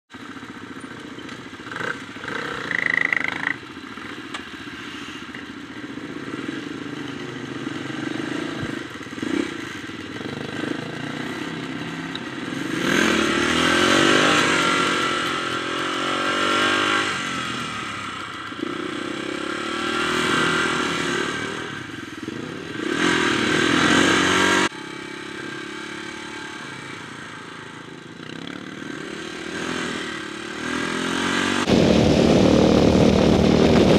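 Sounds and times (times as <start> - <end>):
dirt bike engine revving: 1.6 - 4.2, 5.9 - 33.9
wind noise on microphone: 31.7 - 33.9.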